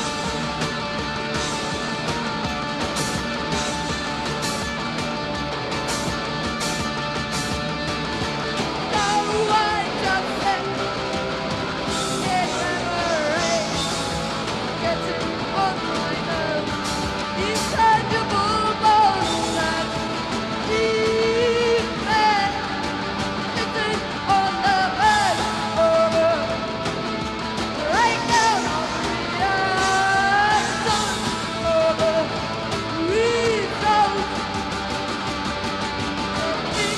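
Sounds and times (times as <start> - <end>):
bass guitar: 0.0 - 36.9
drums with cymbal crashes: 0.0 - 36.9
electric guitar: 0.0 - 36.9
woman singing and yelling: 9.0 - 10.8, 12.2 - 13.8, 14.8 - 16.7, 17.4 - 20.0, 20.7 - 22.8, 23.5 - 26.6, 27.8 - 34.5.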